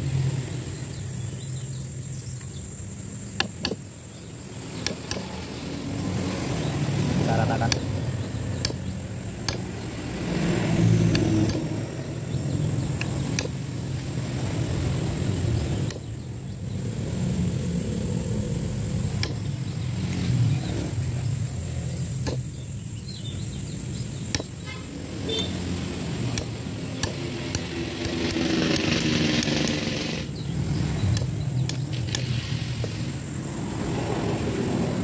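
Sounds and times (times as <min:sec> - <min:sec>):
metallic clicks and taps: 0:12.9 - 0:13.6.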